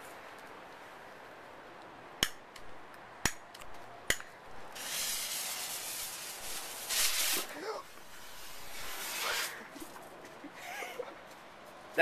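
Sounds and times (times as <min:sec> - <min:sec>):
fuse burning with hiss: 0:04.5 - 0:10.0.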